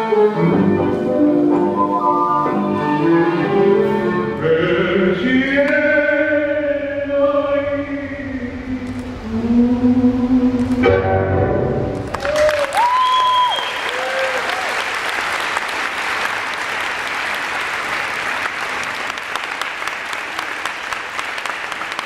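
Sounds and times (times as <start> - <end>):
audience applauding: 12.0 - 22.0.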